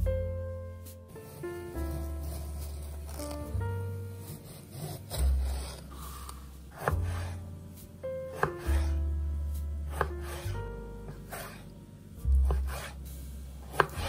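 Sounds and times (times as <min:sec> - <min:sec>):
background music with deep bass: 0:00.0 - 0:14.0
knife slicing tomatoes: 0:01.2 - 0:03.6, 0:04.2 - 0:07.4, 0:08.4 - 0:09.0, 0:09.9 - 0:11.6, 0:12.3 - 0:13.0, 0:13.7 - 0:14.0.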